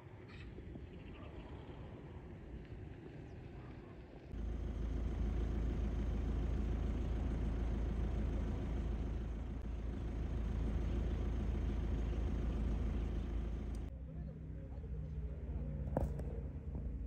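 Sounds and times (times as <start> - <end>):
steady low rumble: 4.3 - 13.9.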